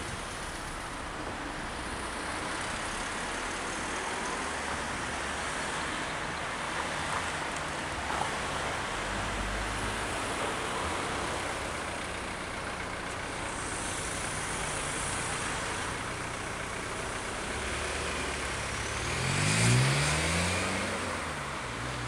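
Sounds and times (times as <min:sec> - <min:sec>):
city street traffic: 0:00.0 - 0:22.0
car driving past: 0:17.7 - 0:22.0.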